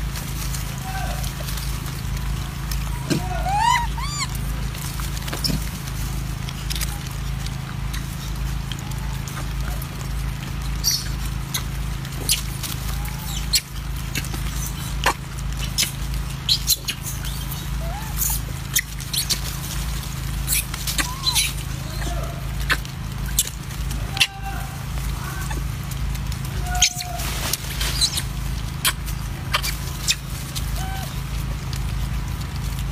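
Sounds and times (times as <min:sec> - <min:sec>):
low hum: 0:00.0 - 0:32.9
monkeys chewing and handling food: 0:00.0 - 0:32.9
monkey squeaky calls: 0:02.8 - 0:04.5, 0:10.8 - 0:19.7, 0:20.4 - 0:25.7, 0:26.5 - 0:31.2.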